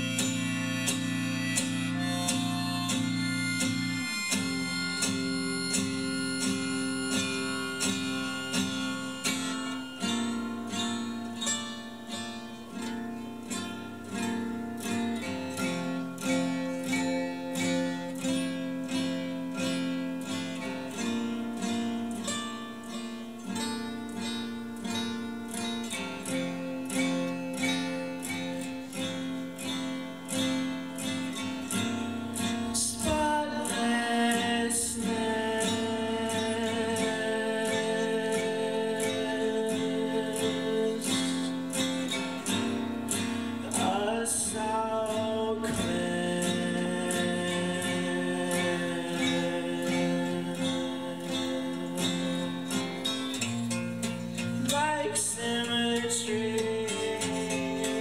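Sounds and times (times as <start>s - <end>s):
person singing: 0.0s - 10.3s, 32.3s - 53.5s, 54.6s - 58.0s
acoustic guitar strumming: 0.0s - 58.0s.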